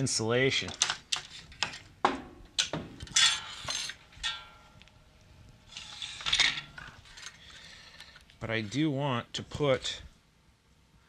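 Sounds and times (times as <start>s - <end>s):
scraping and rustling: 5.6s - 8.9s.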